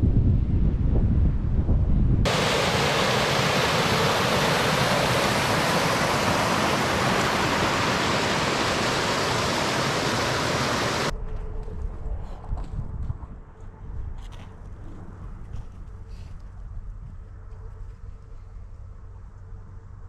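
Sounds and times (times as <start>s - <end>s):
falling water rushing: 2.3s - 11.1s.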